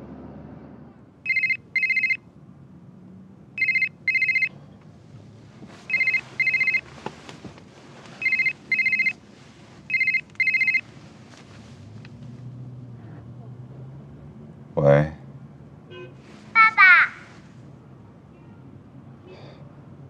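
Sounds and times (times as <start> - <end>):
mobile phone ringing: 1.2 - 2.2, 3.6 - 4.5, 5.9 - 6.9, 8.2 - 9.2, 9.9 - 10.9.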